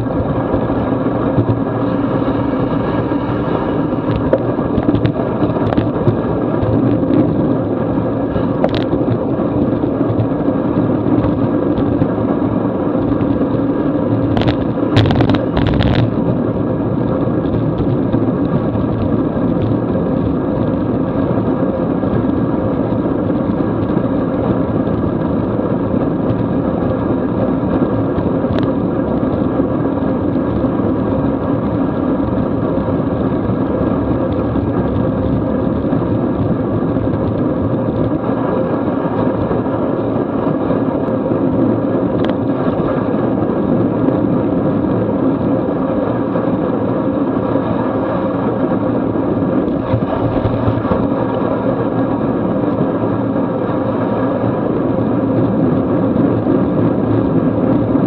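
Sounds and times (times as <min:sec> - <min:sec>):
bicycle tyres on wet asphalt: 0:00.0 - 0:58.0
wind rush: 0:00.0 - 0:58.0.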